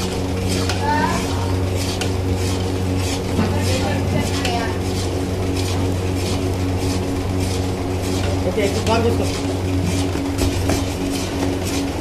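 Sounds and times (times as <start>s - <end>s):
metal ladle scraping a pan: 0.0s - 12.0s
steady low hum: 0.0s - 12.0s.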